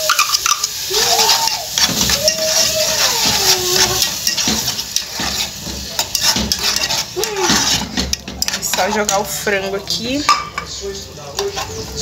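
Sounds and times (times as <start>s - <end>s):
spoon clicking against cup and pan: 0.0s - 0.8s
onion sizzling in oil: 0.0s - 12.0s.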